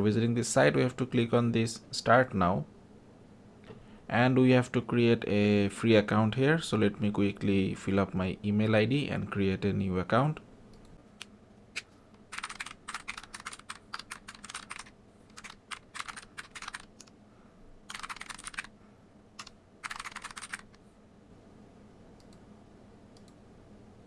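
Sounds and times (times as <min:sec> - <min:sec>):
computer keyboard typing: 0:12.3 - 0:17.1, 0:17.9 - 0:18.7, 0:19.4 - 0:20.8.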